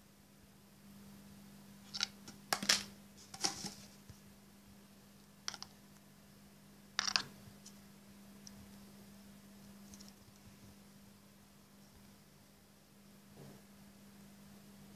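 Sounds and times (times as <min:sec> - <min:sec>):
faint steady hum: 0:00.0 - 0:14.9
plastic clicks and rustles: 0:05.5 - 0:05.7.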